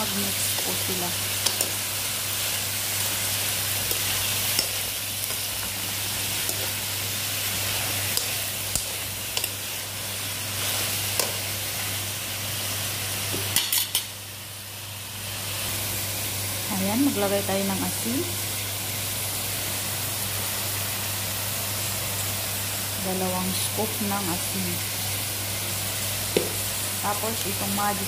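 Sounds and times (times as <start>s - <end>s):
vegetables sizzling in hot oil: 0.0s - 28.0s
spatula scraping and clicking on pan: 1.4s - 1.8s, 3.8s - 6.8s, 7.9s - 9.6s, 10.6s - 11.4s.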